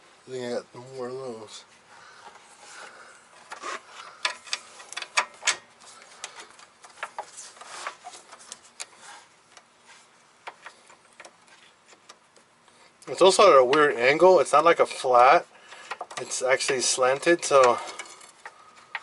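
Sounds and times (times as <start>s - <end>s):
small metallic clicks and taps: 15.7s - 19.0s.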